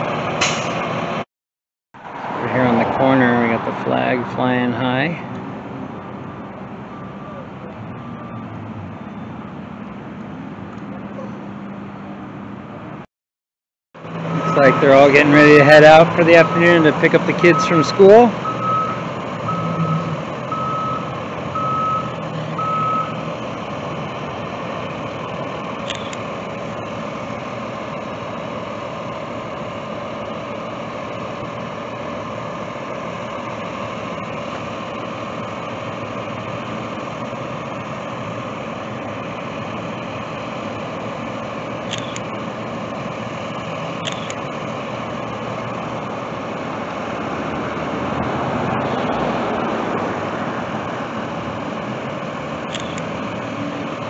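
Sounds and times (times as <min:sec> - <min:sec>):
bus engines running: 0:00.0 - 0:01.2, 0:02.0 - 0:13.1, 0:14.0 - 0:54.0
vehicle backup alarm beeping: 0:06.8 - 0:09.5, 0:14.2 - 0:23.3, 0:25.8 - 0:26.2, 0:41.9 - 0:42.4, 0:43.6 - 0:44.4, 0:52.7 - 0:53.7.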